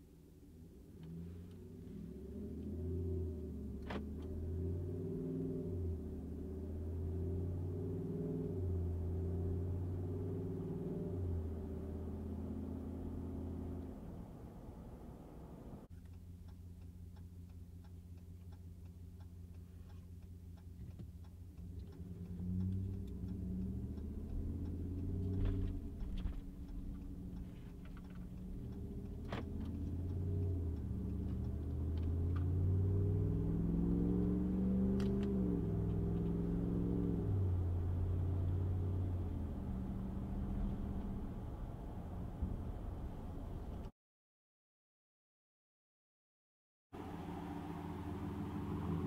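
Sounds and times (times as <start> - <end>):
truck engine accelerating: 1.0 - 15.9, 17.5 - 43.9, 47.0 - 49.0.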